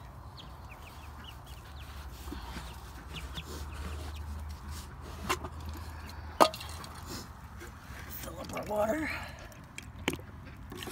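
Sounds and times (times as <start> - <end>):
poultry clucking: 0.0 - 6.2.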